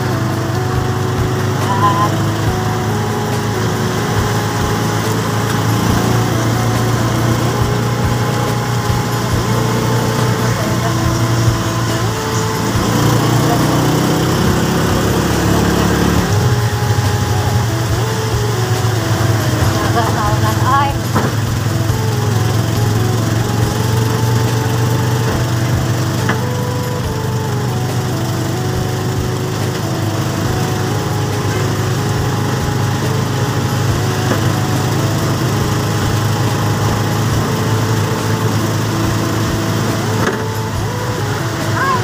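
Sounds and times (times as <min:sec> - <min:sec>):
heavy rain hissing on wet road: 0:00.0 - 0:42.0
small engine droning: 0:00.0 - 0:42.0.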